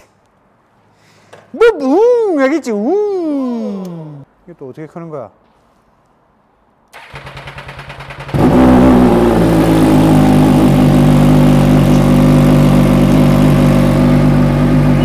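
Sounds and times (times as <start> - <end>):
starter motor cranking: 7.0 - 8.8
motorcycle engine idling: 7.0 - 15.0.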